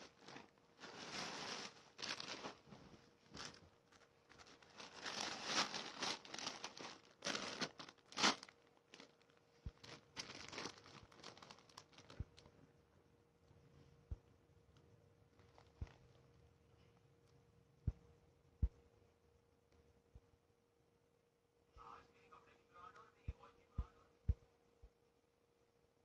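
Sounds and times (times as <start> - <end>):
plastic packaging crinkling: 0.0 - 12.5, 15.3 - 16.1.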